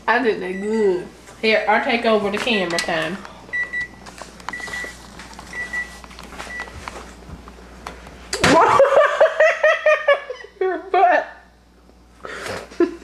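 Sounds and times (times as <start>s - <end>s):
low appliance hum: 0.0s - 13.0s
person laughing loudly: 8.4s - 11.4s, 12.4s - 13.0s.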